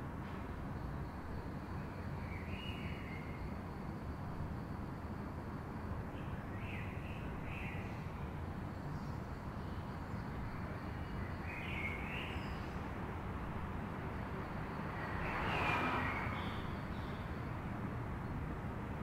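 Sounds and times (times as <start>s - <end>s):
distant traffic rumble: 5.8s - 19.0s.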